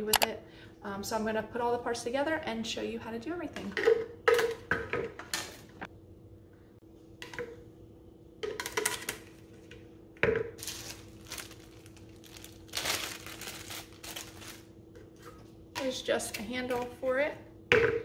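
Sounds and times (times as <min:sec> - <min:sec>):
faint steady hum: 0:00.0 - 0:18.0
plastic bag crinkling: 0:10.6 - 0:14.7.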